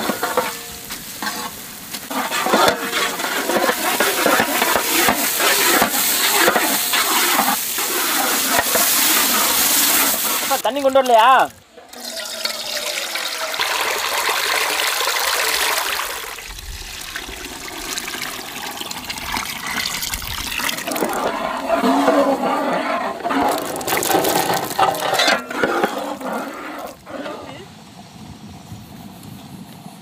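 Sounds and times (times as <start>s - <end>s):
water gushing through a strainer: 2.1s - 10.6s, 11.8s - 27.1s.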